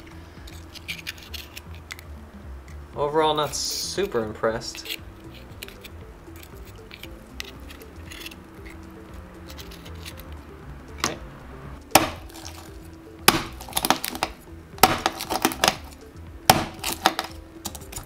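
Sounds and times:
knife knocking on sea urchin shell: 11.9 - 12.4, 13.2 - 15.8, 16.5 - 17.3.

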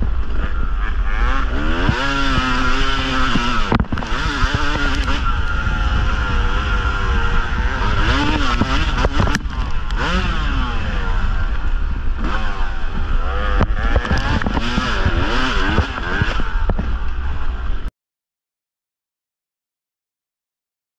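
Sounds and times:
dirt bike engine revving: 0.0 - 17.9
bike knocking and clattering over bumps: 3.2 - 5.1, 13.5 - 17.1.

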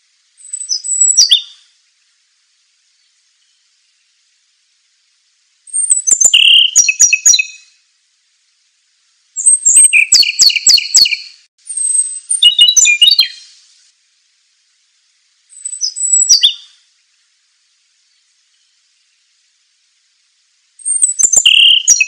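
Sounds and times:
songbird singing trills: 0.4 - 1.8, 2.9 - 4.3, 5.6 - 7.8, 9.4 - 13.6, 15.5 - 16.9, 18.0 - 19.4, 20.8 - 22.0.

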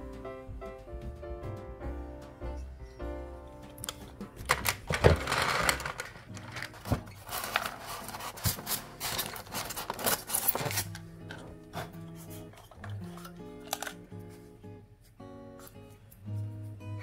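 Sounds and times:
plastic clicking and knocking: 3.8 - 7.7.

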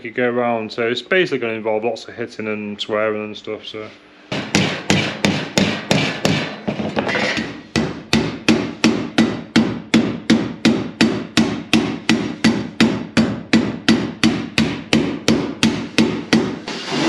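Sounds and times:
rubbing on metal: 15.9 - 17.0.

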